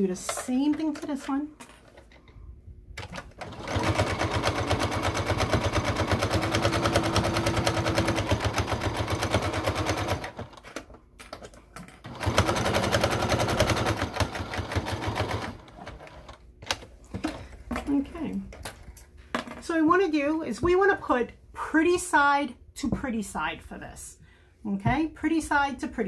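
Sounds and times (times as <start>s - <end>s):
sewing machine stitching: 3.0s - 10.6s, 12.0s - 16.4s.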